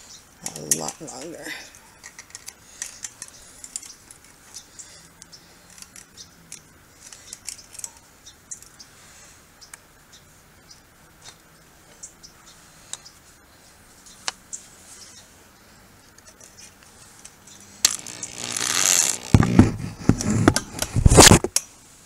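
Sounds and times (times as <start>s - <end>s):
wire clicking and scraping on metal: 0.4s - 1.3s, 2.0s - 8.1s, 16.2s - 21.7s.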